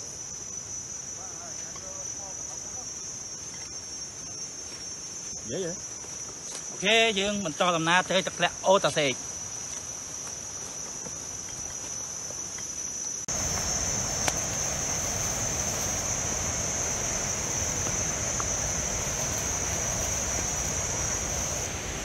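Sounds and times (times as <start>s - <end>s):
insects droning: 0.0s - 22.0s
rushing background noise: 13.3s - 22.0s.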